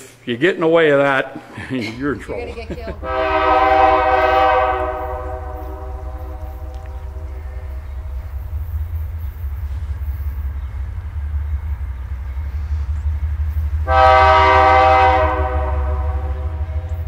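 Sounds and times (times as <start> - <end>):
low rumble: 1.6 - 17.0
locomotive air horn chord: 2.9 - 10.9, 13.7 - 17.0.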